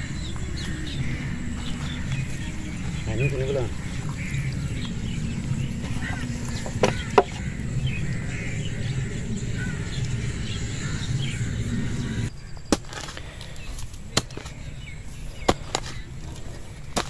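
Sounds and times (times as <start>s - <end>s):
low background rumble: 0.0s - 12.5s
birds chirping: 0.0s - 17.0s
spade striking hard earth: 5.8s - 7.5s, 12.5s - 17.0s.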